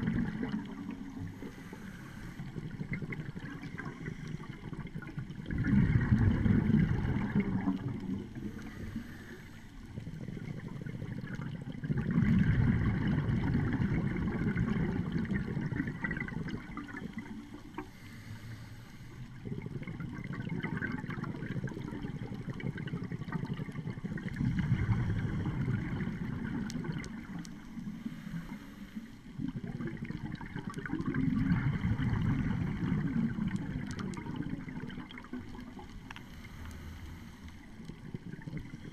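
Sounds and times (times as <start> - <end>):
low underwater rumble: 0.0 - 38.9
regulator exhalation bubbles: 10.0 - 17.4, 29.4 - 35.4.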